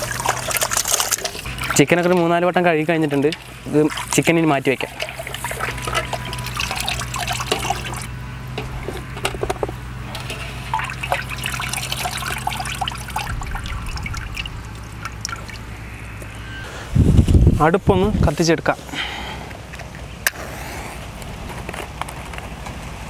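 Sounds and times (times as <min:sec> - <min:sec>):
water dripping and splashing in basin: 0:00.0 - 0:08.7, 0:10.1 - 0:16.4.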